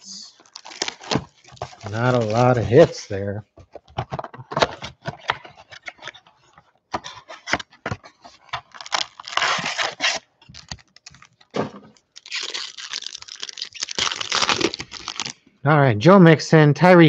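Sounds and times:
foil wrapper crinkling: 0.3 - 3.0, 8.4 - 15.4
cardboard scraping: 0.5 - 3.1, 3.8 - 10.3.

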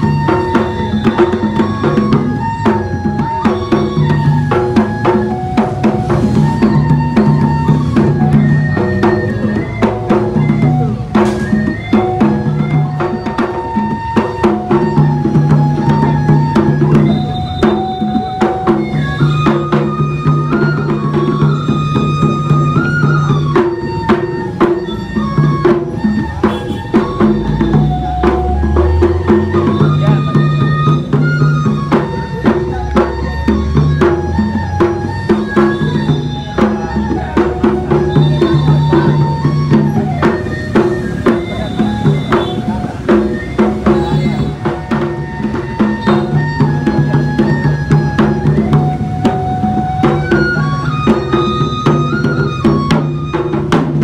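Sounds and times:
rapid drumming: 0.0 - 54.0.

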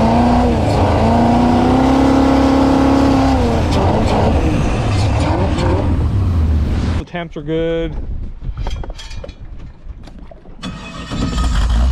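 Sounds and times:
boat engine revving: 0.0 - 7.0, 10.6 - 11.9
wind: 0.0 - 11.9.

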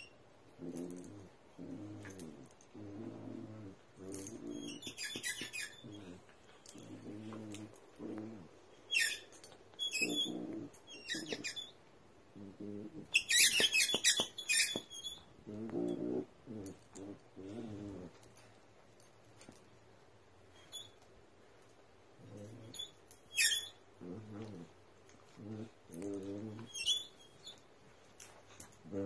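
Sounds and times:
dogs play-growling: 0.0 - 11.7, 12.3 - 19.6, 22.2 - 29.0
squeaky ball squeaking: 4.2 - 7.6, 8.9 - 11.8, 12.8 - 15.7, 22.3 - 24.6, 25.4 - 27.6.

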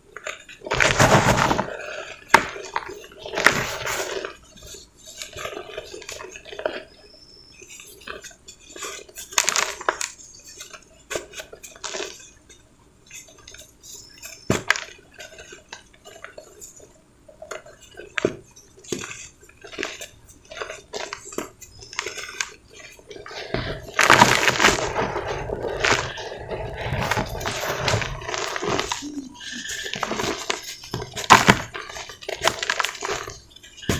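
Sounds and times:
hands crunching cement powder: 0.6 - 4.4, 18.9 - 33.9.

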